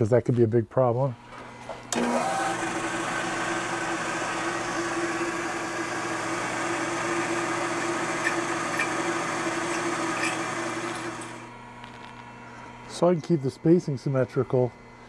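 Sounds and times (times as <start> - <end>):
milling machine spindle motor: 1.3 - 11.6.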